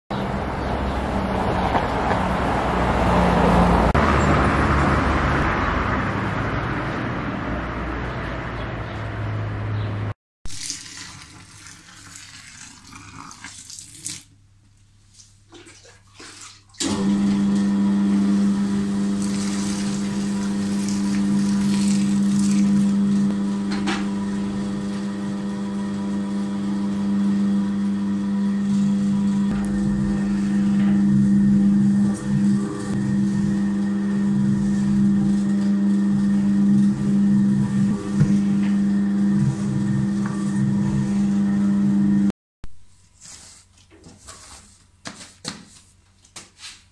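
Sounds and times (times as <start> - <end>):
dough mixer motor hum: 16.8 - 42.3.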